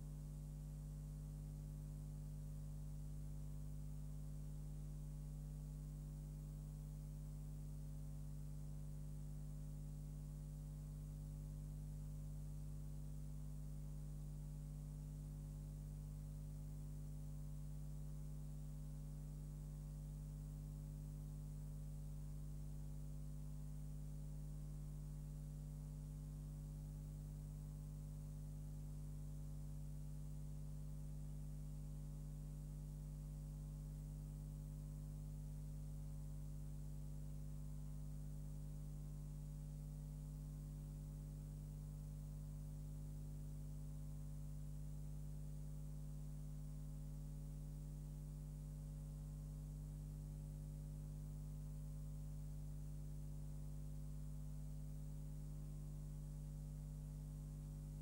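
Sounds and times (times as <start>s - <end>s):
electrical mains hum: 0.0s - 41.4s.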